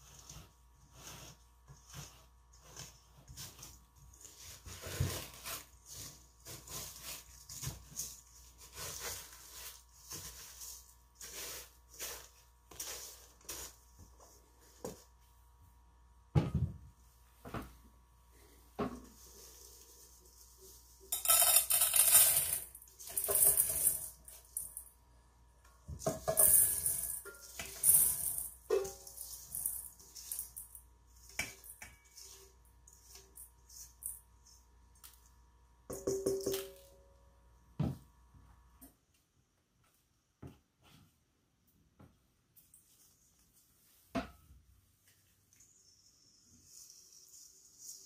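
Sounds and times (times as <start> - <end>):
plastic spatula scraping steel bowl: 0.0 - 13.8
granular crystal pouring and rattling: 26.6 - 30.8.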